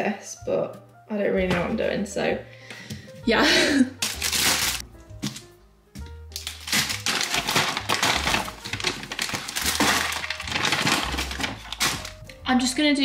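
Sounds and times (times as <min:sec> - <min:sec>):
background music: 0:00.0 - 0:13.0
plastic and paper bags crinkling: 0:04.0 - 0:05.4, 0:06.3 - 0:12.3.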